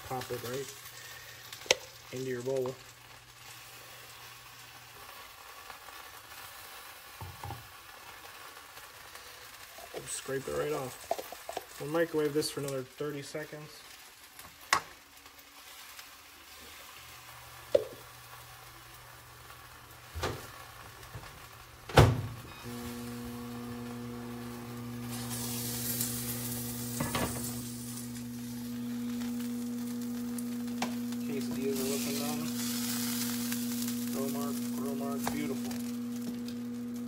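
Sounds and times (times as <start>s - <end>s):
food sizzling in grill pan: 0.0s - 37.0s
microwave oven humming: 17.2s - 37.0s.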